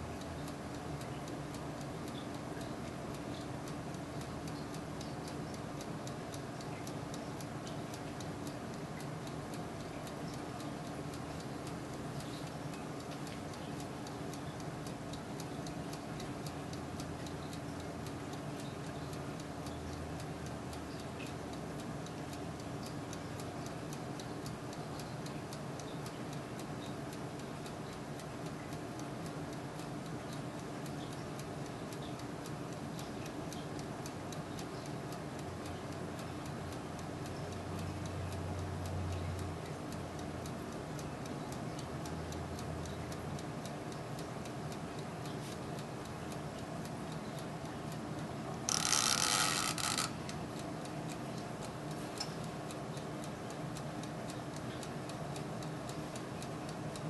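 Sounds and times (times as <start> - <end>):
oven fan humming: 0.0 - 57.0
rapid fine ticking: 45.7 - 56.0.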